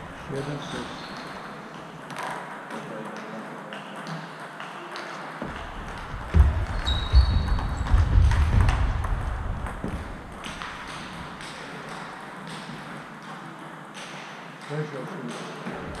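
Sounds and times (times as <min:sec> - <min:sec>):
sports hall ambience: 0:00.0 - 0:16.0
table tennis ball strikes: 0:00.4 - 0:16.0
heavy low thuds: 0:05.6 - 0:10.8.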